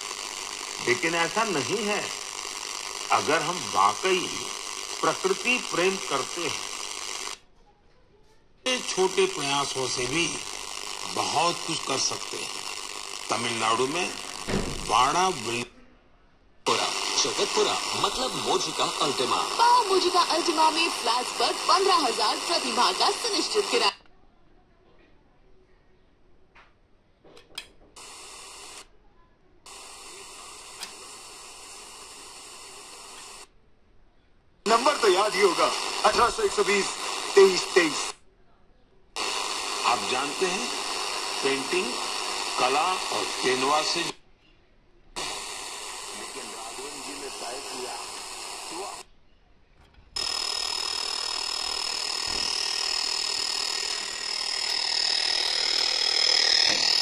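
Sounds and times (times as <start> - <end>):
radio static hiss: 0.0 - 7.4, 8.6 - 15.8, 16.6 - 24.0, 28.0 - 28.9, 29.7 - 33.5, 34.6 - 38.2, 39.2 - 44.2, 45.1 - 49.1, 50.2 - 57.0
thin high whine: 0.0 - 7.4, 8.7 - 15.7, 16.7 - 24.0, 34.7 - 38.2, 39.2 - 44.2, 45.2 - 49.1, 50.2 - 57.0
radio click: 8.7 - 15.7, 30.6 - 31.8.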